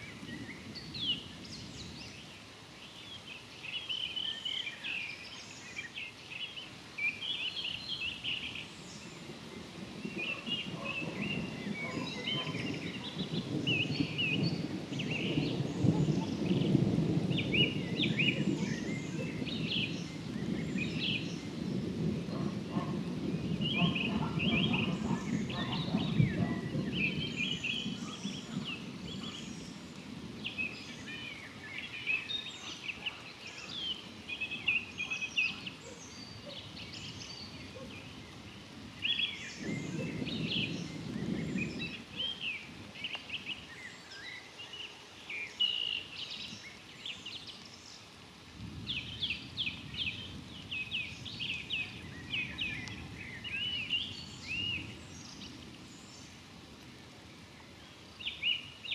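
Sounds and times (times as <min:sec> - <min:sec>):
birds chirping and singing: 0:00.0 - 0:48.2, 0:48.8 - 0:56.4
distant thunder rumbling: 0:09.0 - 0:31.7, 0:33.7 - 0:43.4.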